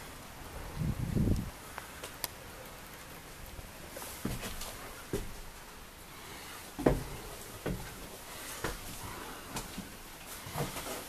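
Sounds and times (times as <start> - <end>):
footsteps on bus floor: 4.0 - 5.4, 6.8 - 11.0.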